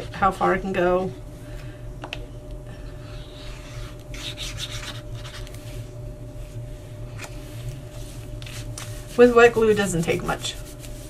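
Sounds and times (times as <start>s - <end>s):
scratchy paper strokes: 3.0s - 5.9s, 7.7s - 11.0s.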